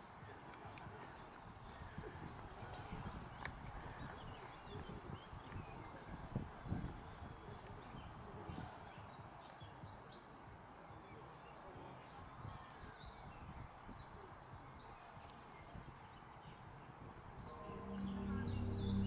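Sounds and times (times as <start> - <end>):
faint high chirps: 17.5 - 19.0
low rumble: 17.5 - 19.0.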